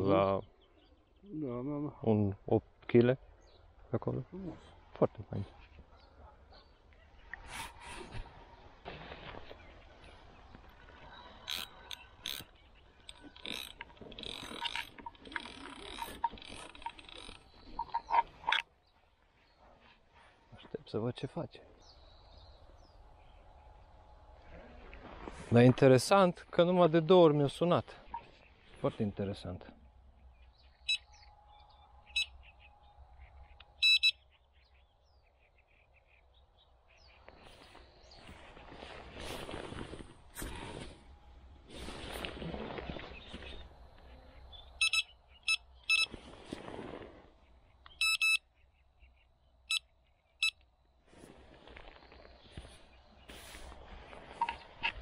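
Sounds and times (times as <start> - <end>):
fishing reel ratcheting: 11.4 - 12.5, 13.1 - 17.5
electronic bite alarm beeping: 30.9 - 31.1, 32.1 - 32.4, 33.8 - 34.2, 44.8 - 46.1, 47.9 - 48.4
rustling hiss: 38.4 - 43.7, 51.0 - 54.5.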